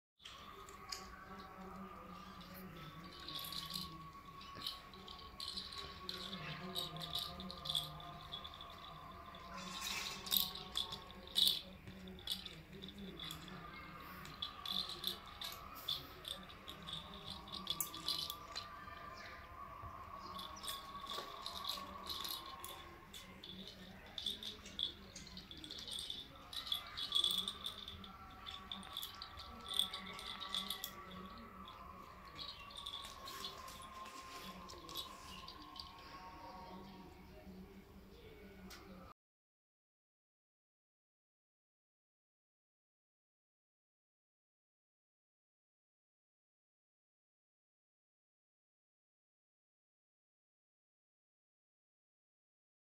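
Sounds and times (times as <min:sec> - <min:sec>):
parrot rattling plastic ball toy: 0:00.2 - 0:18.9, 0:20.3 - 0:36.1.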